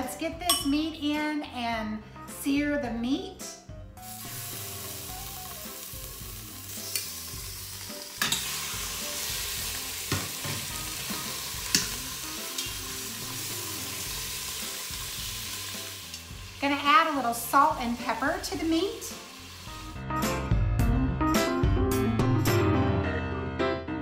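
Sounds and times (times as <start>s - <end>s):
metal tongs clinking on pot: 0.5s - 0.8s, 8.2s - 8.5s, 11.7s - 12.8s
meat sizzling in hot oil: 4.0s - 20.0s.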